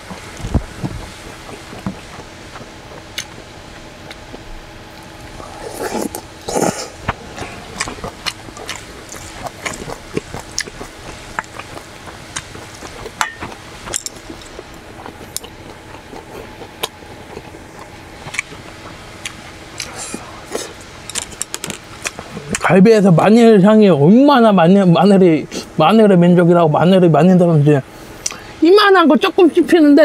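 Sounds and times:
wet chewing smacks: 0:00.4 - 0:22.7
person slurping noodles: 0:05.4 - 0:10.0.

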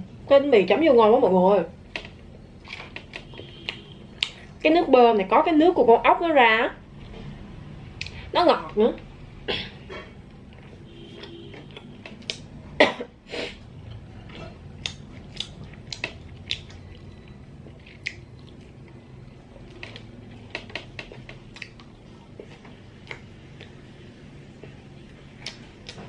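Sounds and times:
sucking and chewing: 0:02.0 - 0:04.6, 0:13.4 - 0:26.0.

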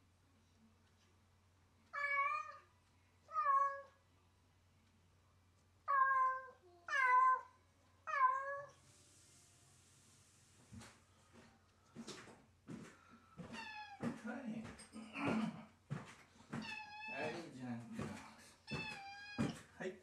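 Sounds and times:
cat meowing: 0:01.9 - 0:02.7, 0:03.3 - 0:04.0, 0:05.9 - 0:08.8, 0:13.4 - 0:14.2, 0:16.6 - 0:17.5, 0:18.6 - 0:19.6.

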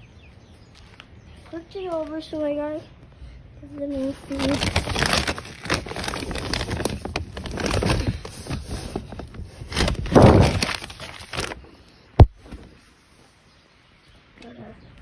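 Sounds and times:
paper bag rustling and crinkling: 0:03.8 - 0:12.9.

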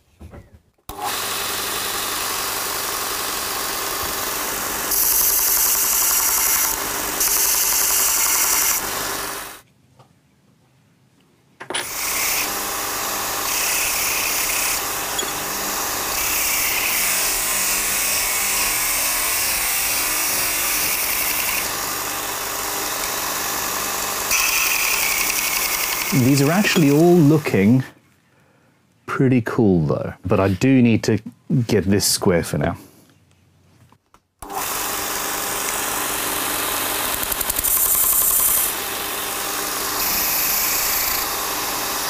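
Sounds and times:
belt grinder motor hum: 0:00.9 - 0:09.6, 0:11.8 - 0:27.6, 0:34.4 - 0:42.0.

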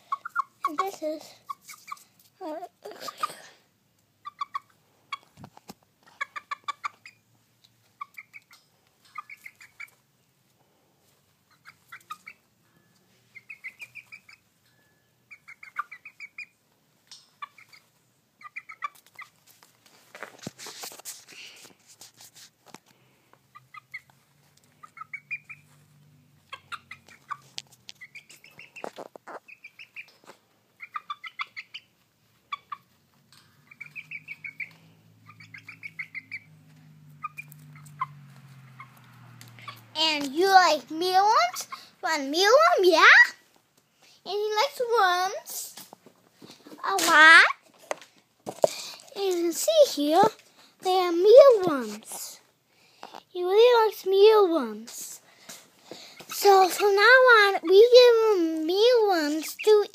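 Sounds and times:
rustling: 0:18.8 - 0:30.7
chicken clucking: 0:26.4 - 0:33.0, 0:33.6 - 0:39.0.

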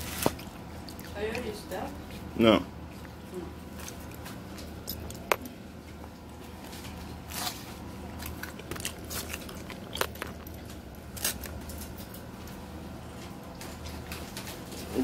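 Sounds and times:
person chewing: 0:00.0 - 0:01.4, 0:02.1 - 0:12.6.

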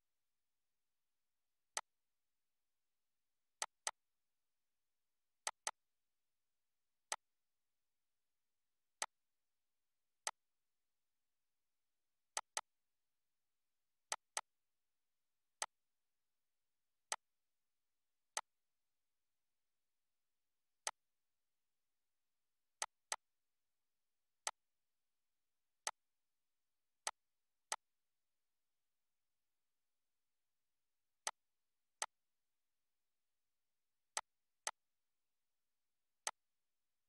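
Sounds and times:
computer mouse clicks: 0:05.4 - 0:05.8, 0:12.4 - 0:12.7.

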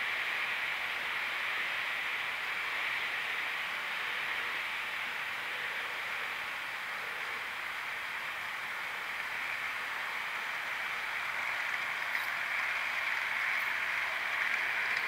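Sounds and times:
model train wagons rolling: 0:07.0 - 0:15.0
faint clicks: 0:11.7 - 0:15.0.

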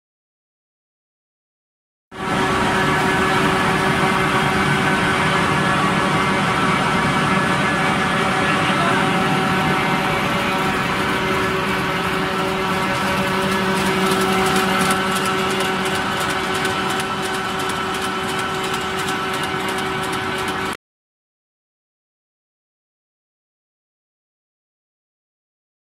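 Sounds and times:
printing machine running: 0:02.2 - 0:20.8
fast patter of light clicks: 0:13.4 - 0:20.8.

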